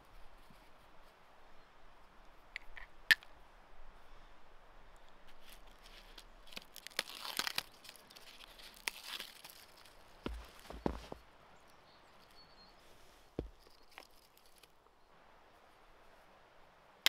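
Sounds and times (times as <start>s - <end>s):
bark tearing and crackling: 5.8s - 11.2s.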